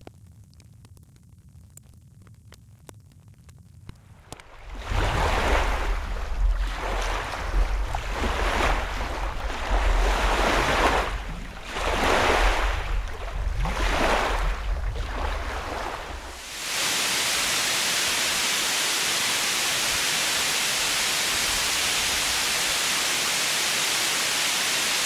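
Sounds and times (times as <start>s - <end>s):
wood fire crackling: 0.0s - 4.7s
ocean waves surging: 4.4s - 25.0s.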